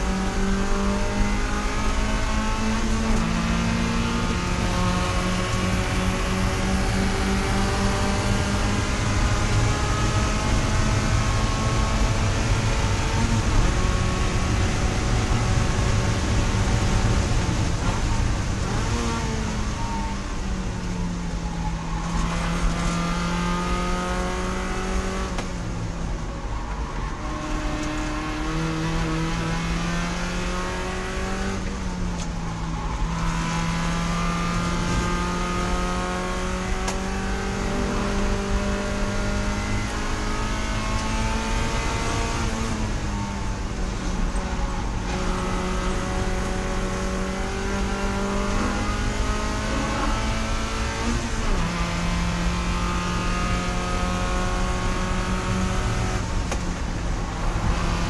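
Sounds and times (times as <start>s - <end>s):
race car engine accelerating: 0.0s - 20.4s, 21.4s - 25.6s, 26.3s - 58.0s.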